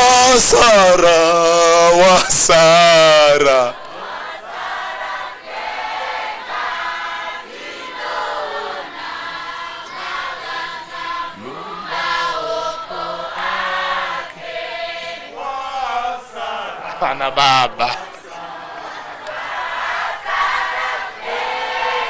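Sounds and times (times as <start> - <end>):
congregation singing a hymn: 0.0 - 22.0.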